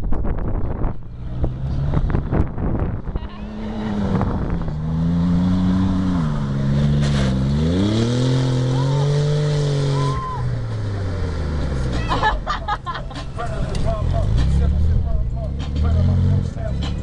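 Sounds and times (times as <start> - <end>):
wind buffeting microphone: 0.0 - 5.0
engine revving under load: 0.9 - 12.1, 13.5 - 17.0.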